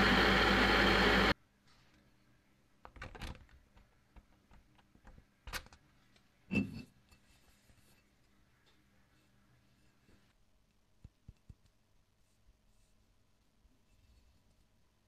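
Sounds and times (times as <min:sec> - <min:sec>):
faint rustles and taps: 0:11.0 - 0:12.9.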